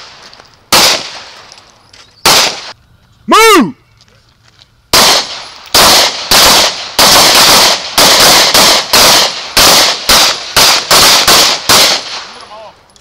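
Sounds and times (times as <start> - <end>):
rapid pistol fire: 0.7 - 1.3, 2.3 - 2.7, 4.9 - 12.4.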